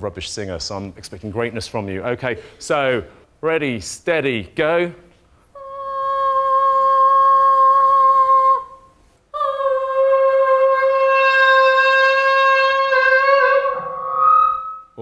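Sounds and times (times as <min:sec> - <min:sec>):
girl singing a high note: 0:05.6 - 0:14.8.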